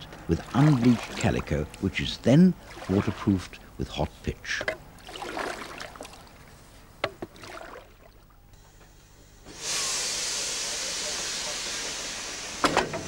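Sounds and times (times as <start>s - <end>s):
faint water sounds: 0.0s - 8.5s
light knocks from paddling boat: 7.0s - 7.4s
loud steady steam hiss: 9.1s - 13.0s.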